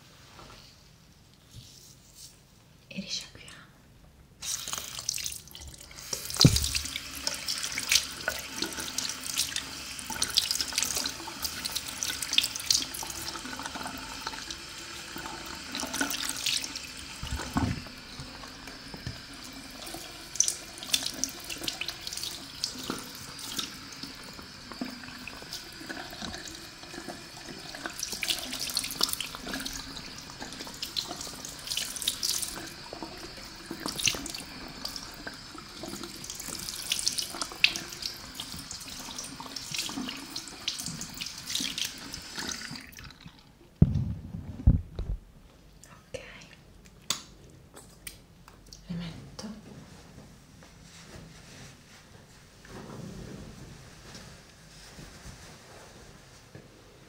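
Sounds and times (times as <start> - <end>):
tap water running and splashing: 4.4 - 43.5.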